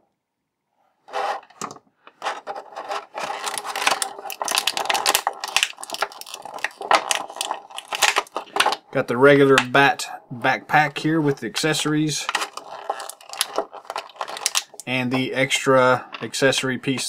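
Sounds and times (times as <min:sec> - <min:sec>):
plastic packaging crackling: 0:02.2 - 0:08.9, 0:11.6 - 0:15.7.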